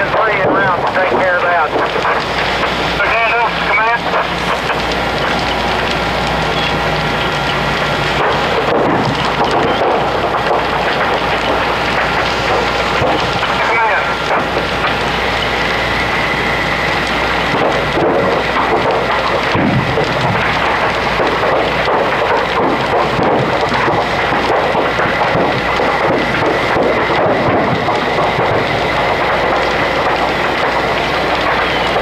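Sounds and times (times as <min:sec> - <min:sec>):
large fire roaring and crackling: 0:00.0 - 0:32.0.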